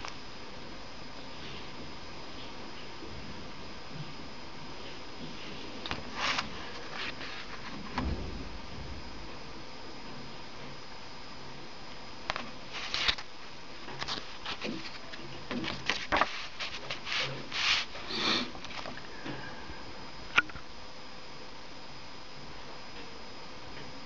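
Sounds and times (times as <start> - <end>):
paper pages rustling: 5.9 - 7.9, 12.7 - 13.3, 13.9 - 18.0.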